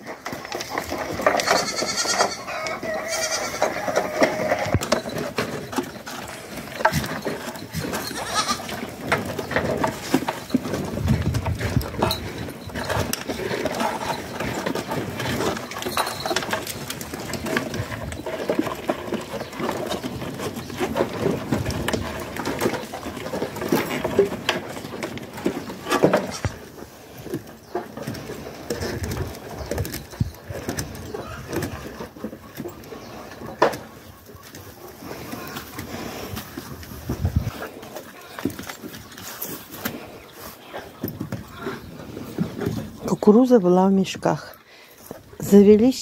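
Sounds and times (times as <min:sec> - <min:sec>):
goat bleating: 0:01.4 - 0:04.9, 0:08.0 - 0:08.8.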